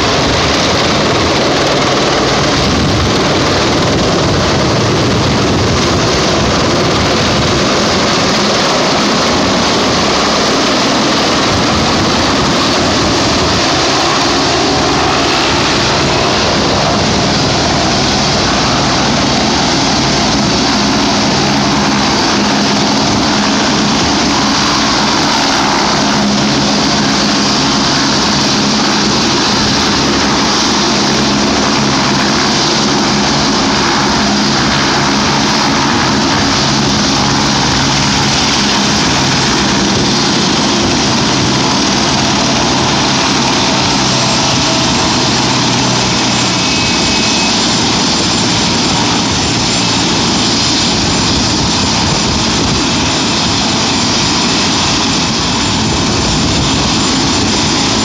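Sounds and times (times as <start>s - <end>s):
helicopter turbine and rotor: 0.0s - 58.0s.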